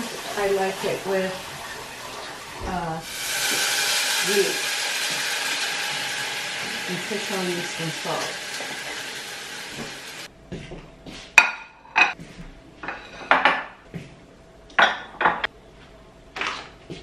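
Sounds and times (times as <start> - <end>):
pan sizzling: 0.0 - 10.3
ceramic dishes clinking: 11.4 - 12.2, 12.8 - 13.8.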